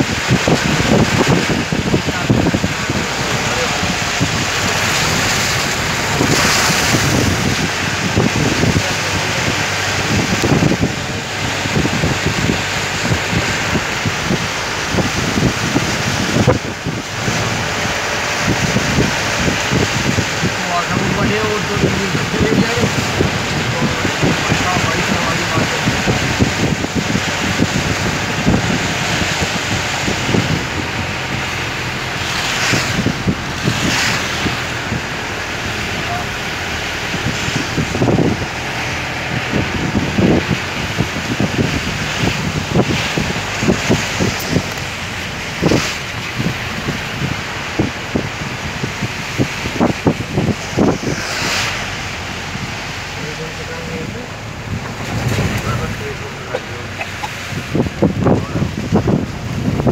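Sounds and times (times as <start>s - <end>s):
moving vehicle noise: 0.0s - 59.9s
wind buffeting microphone: 0.0s - 59.9s
low thumps: 53.8s - 59.9s.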